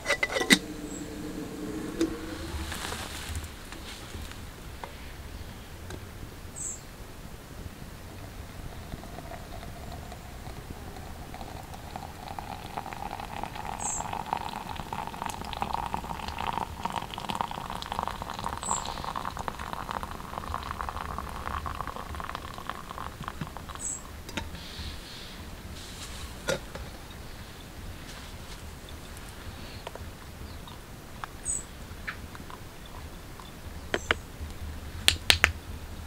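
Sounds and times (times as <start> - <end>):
bird chirping: 0.0 - 3.8, 6.5 - 7.0, 13.6 - 14.3, 28.8 - 32.2
water trickling into cup: 8.1 - 24.6.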